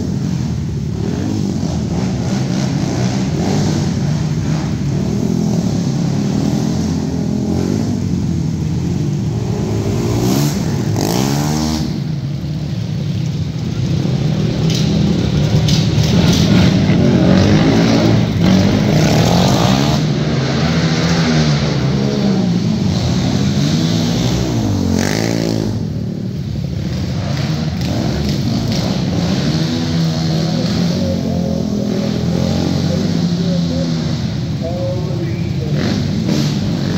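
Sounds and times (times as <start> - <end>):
quad engines revving: 0.0 - 36.9.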